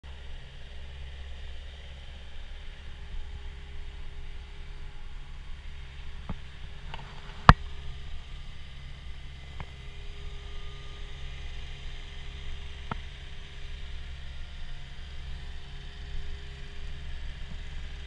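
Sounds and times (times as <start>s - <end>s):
diesel engine idling: 0.1s - 18.0s.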